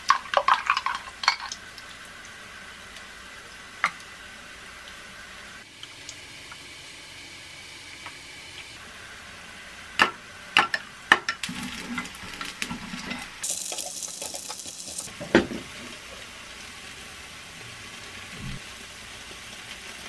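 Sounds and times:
food sizzling in a pan: 0:11.4 - 0:20.0.

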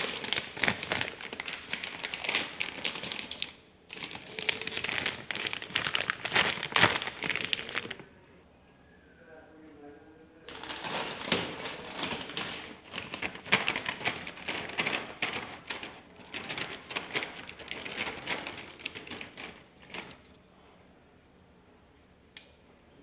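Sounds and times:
plastic bag crinkling: 0:00.0 - 0:08.2, 0:10.5 - 0:20.4.

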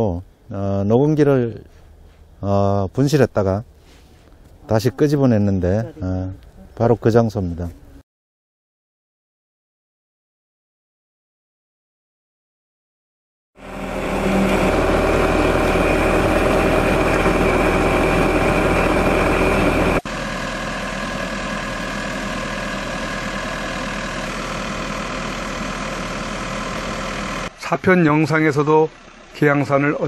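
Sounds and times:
drilling rig engine running: 0:13.6 - 0:30.0.

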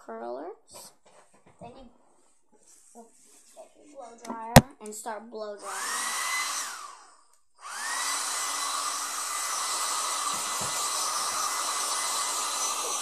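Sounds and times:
hair dryer blowing: 0:05.6 - 0:13.0.

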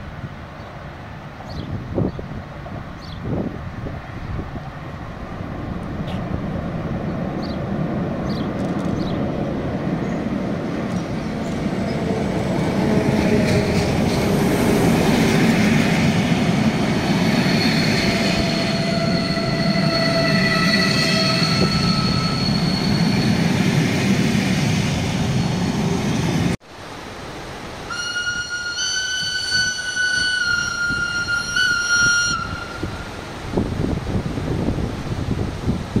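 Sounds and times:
train wheels rumbling: 0:04.0 - 0:26.6, 0:27.9 - 0:36.0
wheel squeal: 0:17.3 - 0:23.6, 0:27.9 - 0:33.0
train horn: 0:18.0 - 0:23.0, 0:27.9 - 0:33.2.

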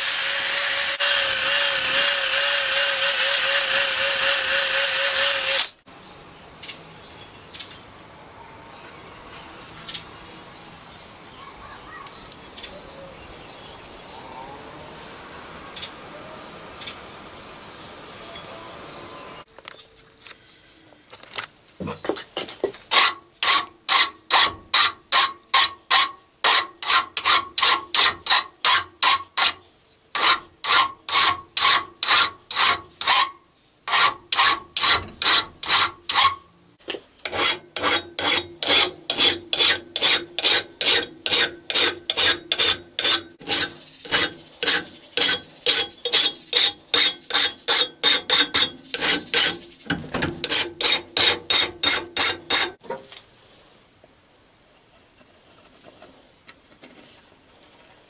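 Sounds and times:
hand file rasping on steel: 0:22.9 - 0:29.6, 0:30.2 - 0:36.4, 0:37.2 - 0:49.7, 0:50.4 - 0:52.8.

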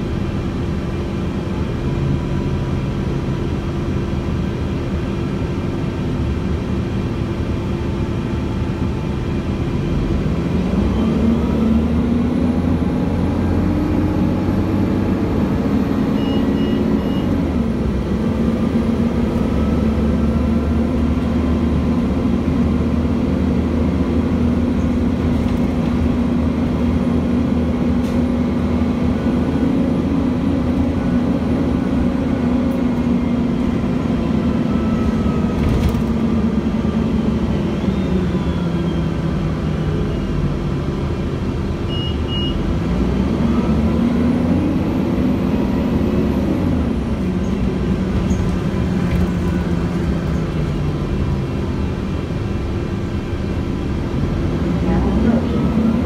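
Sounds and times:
bus diesel engine: 0:00.0 - 0:56.0.

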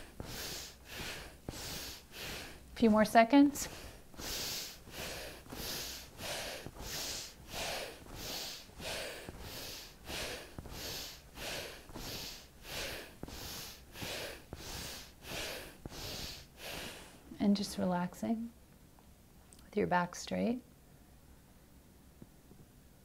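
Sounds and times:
woman sniffing breaths: 0:00.0 - 0:02.8, 0:03.6 - 0:17.3.

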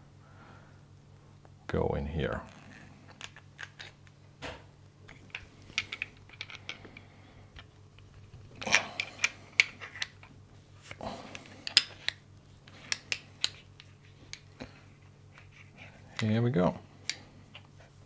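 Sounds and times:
faint low hum: 0:00.0 - 0:18.0
metal parts clicking and clinking: 0:02.6 - 0:04.0, 0:05.1 - 0:07.0, 0:07.6 - 0:10.3, 0:11.4 - 0:14.6, 0:15.3 - 0:16.4.

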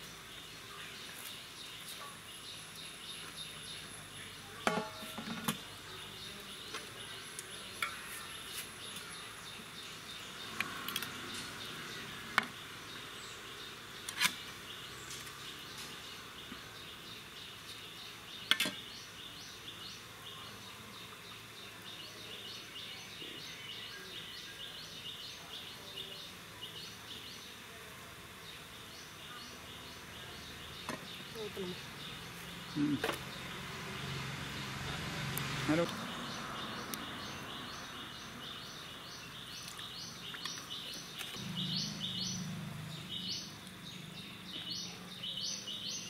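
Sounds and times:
insects chirping: 0:28.4 - 0:46.0.

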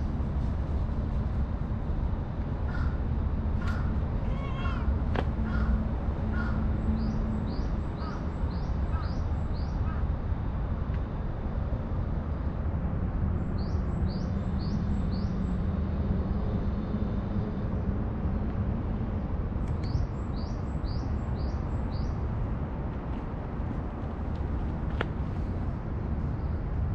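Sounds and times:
low background rumble: 0:00.0 - 0:26.9
crows cawing: 0:02.7 - 0:03.0, 0:03.6 - 0:06.6.

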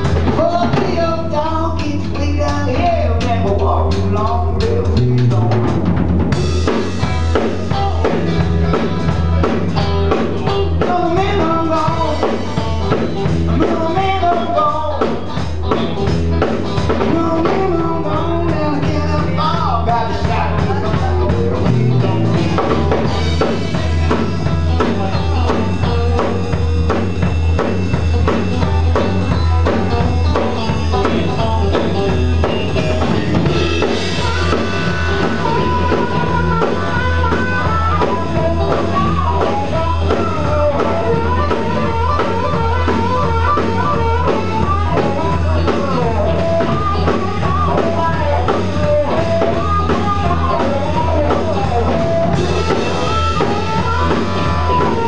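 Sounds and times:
drum kit beat: 0:00.0 - 0:55.0
electric bass: 0:00.0 - 0:55.0
electric guitar: 0:00.0 - 0:55.0.

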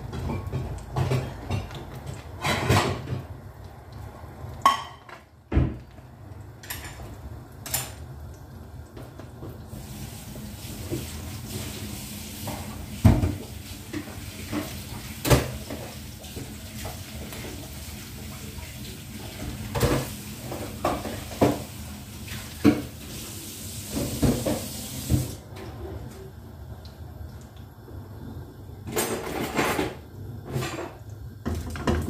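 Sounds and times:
egg frying in pan: 0:00.0 - 0:25.3.

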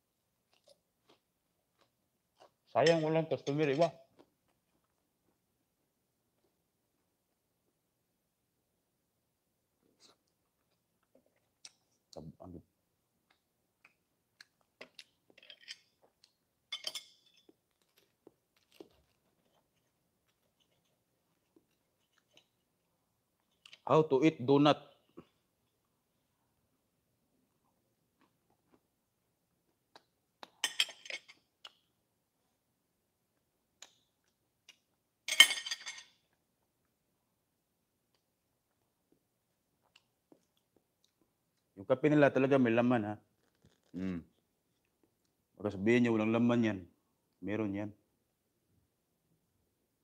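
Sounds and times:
knife and fork clinking on plate: 0:02.8 - 0:03.9, 0:16.7 - 0:17.6, 0:30.6 - 0:31.4, 0:35.3 - 0:36.2.

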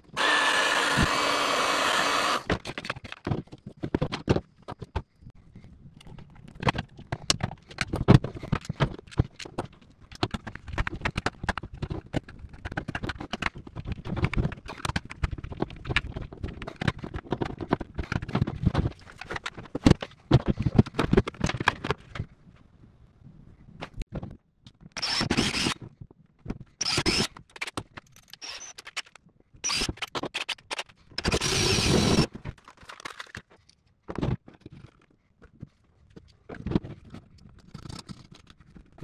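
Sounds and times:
clicks and knocks of parts handled: 0:02.2 - 0:05.1, 0:32.3 - 0:39.0.

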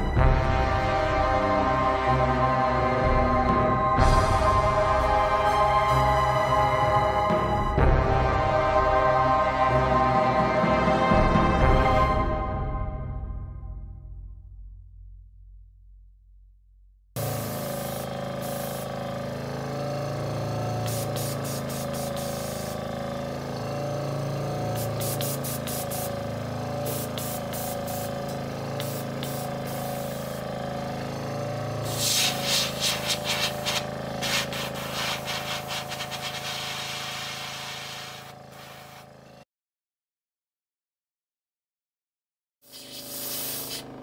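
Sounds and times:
hissing air: 0:17.2 - 0:19.2, 0:20.8 - 0:22.9, 0:24.7 - 0:26.2, 0:26.8 - 0:30.5, 0:31.8 - 0:39.1, 0:42.7 - 0:44.0
compressor humming: 0:17.2 - 0:39.4.

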